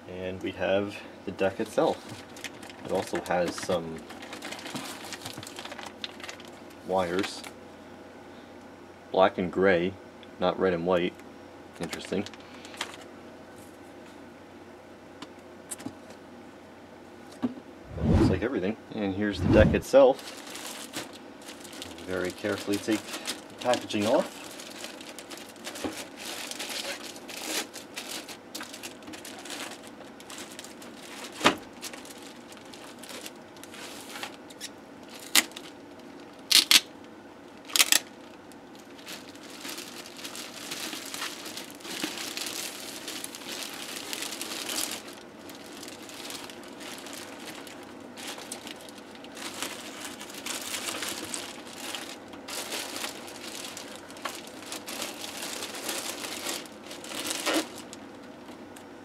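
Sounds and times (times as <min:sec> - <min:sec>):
plastic packaging crinkling: 0:01.4 - 0:07.5, 0:20.0 - 0:58.6.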